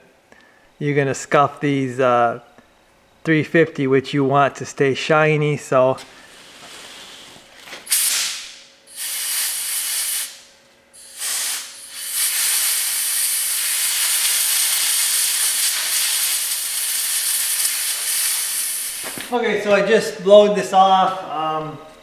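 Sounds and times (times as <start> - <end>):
compressed-air blow gun hissing: 6.3 - 10.4, 11.0 - 19.3.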